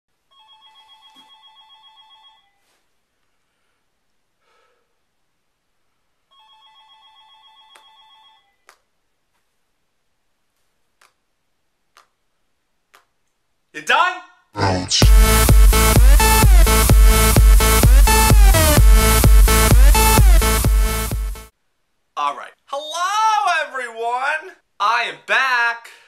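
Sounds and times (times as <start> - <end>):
telephone electronic trilling ring: 0.3 - 2.6, 6.3 - 8.6.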